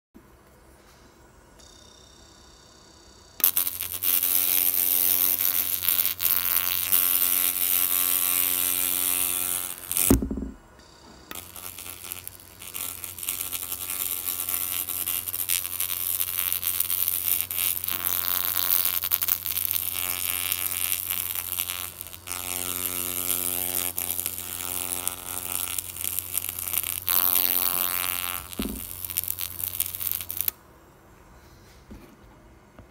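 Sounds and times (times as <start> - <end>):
buzzing hum with a tone: 1.6 - 30.6
laser crackling hiss: 3.4 - 10.4, 11.3 - 30.5.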